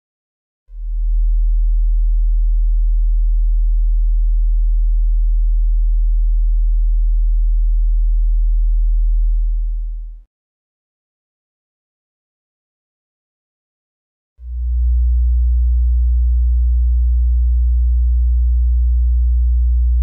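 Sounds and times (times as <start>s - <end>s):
low sine test tone: 0.7s - 10.3s, 14.4s - 20.0s.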